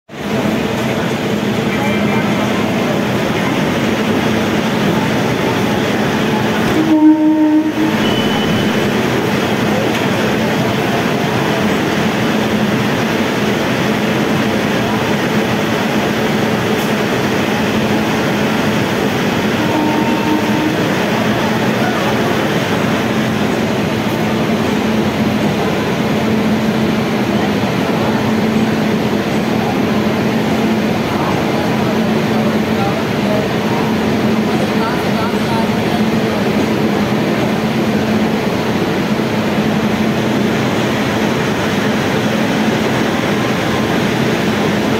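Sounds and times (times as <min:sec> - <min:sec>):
passenger train running noise: 0:00.1 - 0:44.9
train horn blast: 0:06.6 - 0:09.0, 0:19.5 - 0:21.3.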